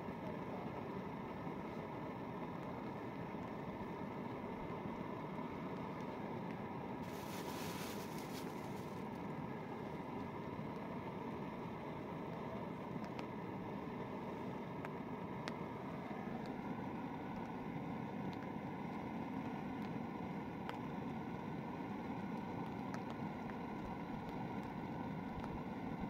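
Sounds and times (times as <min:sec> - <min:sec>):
camping stove flame rushing: 0:00.1 - 0:26.0
faint clicks: 0:13.0 - 0:13.3.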